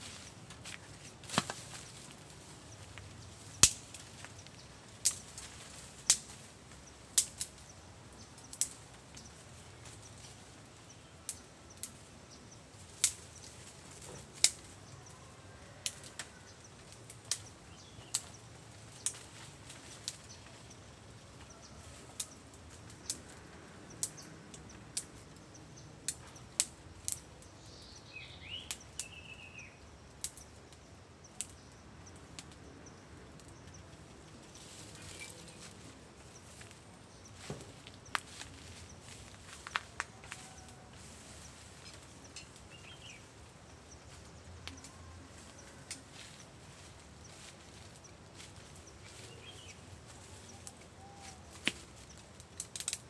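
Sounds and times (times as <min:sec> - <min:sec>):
bamboo twigs crackling in fire: 0:00.0 - 0:53.0
bird chirping: 0:23.9 - 0:39.3, 0:41.4 - 0:52.3.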